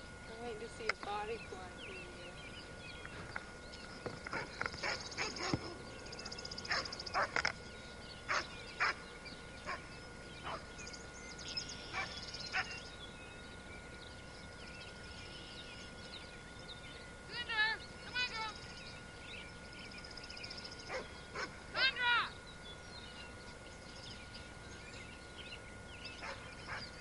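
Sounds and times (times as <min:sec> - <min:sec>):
dog barking: 0:04.3 - 0:05.8, 0:06.7 - 0:07.4, 0:08.3 - 0:09.0, 0:09.7 - 0:10.7, 0:11.9 - 0:12.8, 0:20.9 - 0:22.0, 0:26.2 - 0:27.0.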